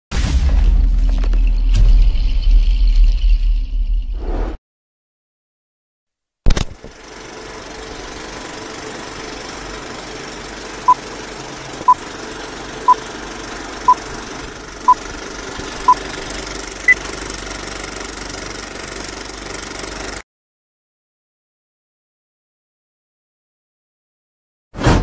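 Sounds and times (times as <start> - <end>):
film projector mechanical rattle: 6.6 - 20.2.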